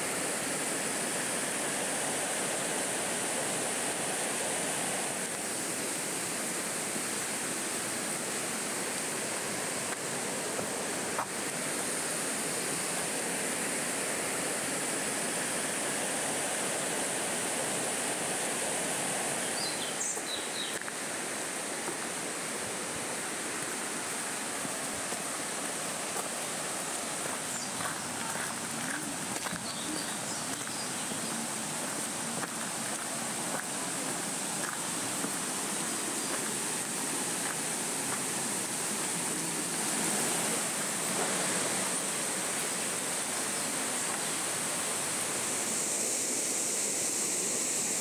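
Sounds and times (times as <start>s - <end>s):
river rushing through gorge: 0.0s - 48.0s.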